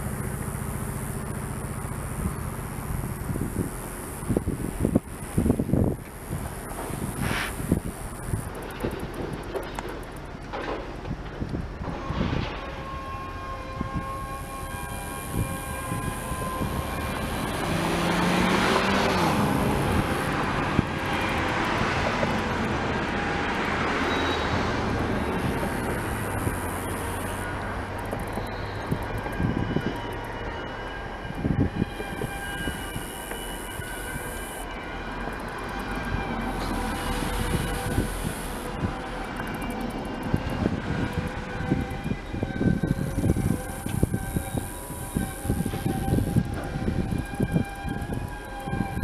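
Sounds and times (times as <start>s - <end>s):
freight train rumbling: 0.0s - 49.0s
wheels squealing: 14.0s - 49.0s.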